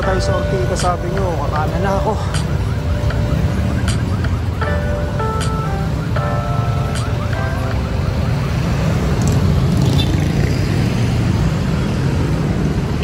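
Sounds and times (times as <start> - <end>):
background music: 0.0 - 9.0
road traffic rumble: 0.0 - 13.0.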